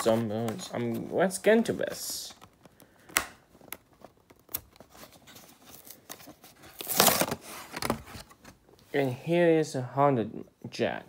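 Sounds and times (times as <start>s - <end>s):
plastic ripping tear: 6.7s - 8.0s.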